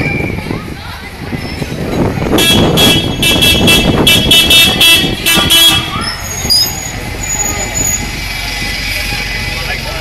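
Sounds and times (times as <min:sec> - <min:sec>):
bus passing close by: 0:00.0 - 0:10.0
vehicle horns tooting: 0:02.3 - 0:08.1.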